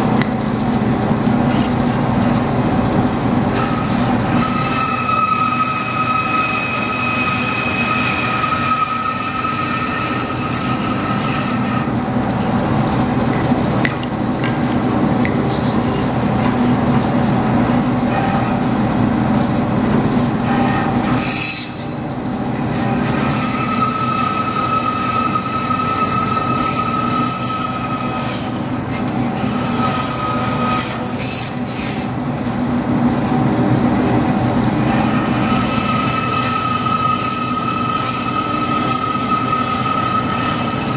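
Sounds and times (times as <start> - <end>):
bandsaw cutting aluminum: 0.0 - 40.9
blade squealing ring: 3.5 - 11.9, 20.4 - 22.0, 22.7 - 32.5, 34.8 - 40.9.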